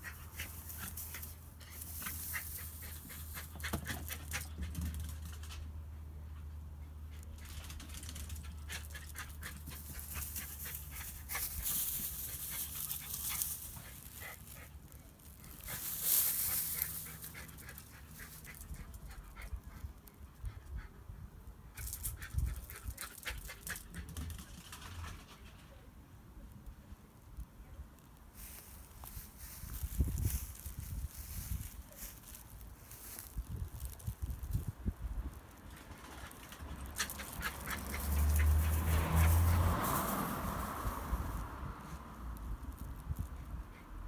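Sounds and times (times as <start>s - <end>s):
paws rustling through grass: 0.0s - 4.2s, 8.8s - 19.8s, 28.4s - 34.7s, 36.9s - 40.7s.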